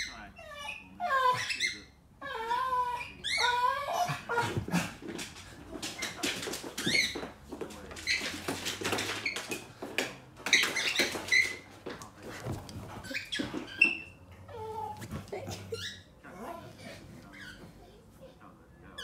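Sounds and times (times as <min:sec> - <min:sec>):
dog yipping and squeaking: 0:00.0 - 0:04.6, 0:05.8 - 0:07.3, 0:08.0 - 0:09.6, 0:10.4 - 0:11.7, 0:12.9 - 0:16.2
dog whining: 0:00.0 - 0:04.9, 0:12.9 - 0:16.7.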